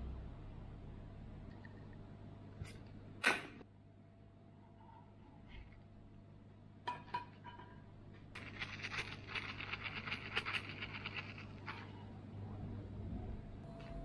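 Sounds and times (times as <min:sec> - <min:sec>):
spice jar rattling: 0:08.4 - 0:12.0.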